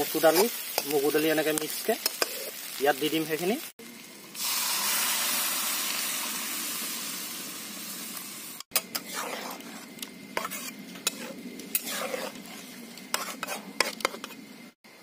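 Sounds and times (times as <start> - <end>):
lentils hissing in a hot pan: 0.0 - 14.7
metal spatula scraping a pan: 8.7 - 14.5.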